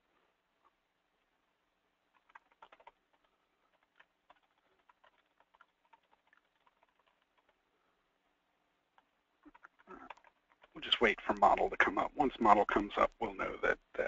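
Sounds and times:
computer mouse clicks: 0:02.1 - 0:07.6, 0:08.9 - 0:10.8.

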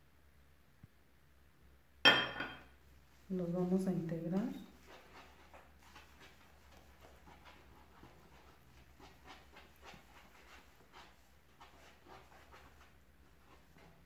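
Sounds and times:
wet squishing of dough: 0:03.0 - 0:14.0.

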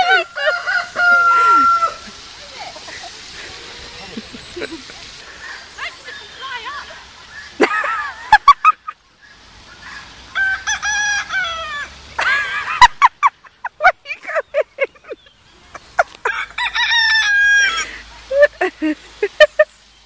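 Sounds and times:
rooster crowing: 0:00.0 - 0:04.7, 0:09.8 - 0:12.0, 0:16.2 - 0:17.9.

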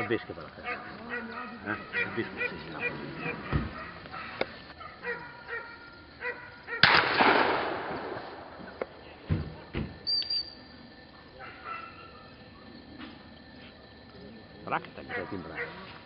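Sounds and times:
shotgun shot: 0:06.8 - 0:08.5.

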